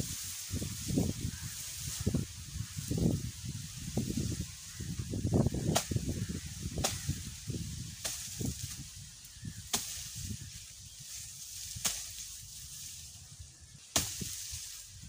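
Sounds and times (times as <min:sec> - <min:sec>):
blade chopping grass stalks: 0:05.6 - 0:07.3, 0:07.9 - 0:08.9, 0:09.6 - 0:10.4, 0:11.0 - 0:13.0, 0:13.9 - 0:14.8.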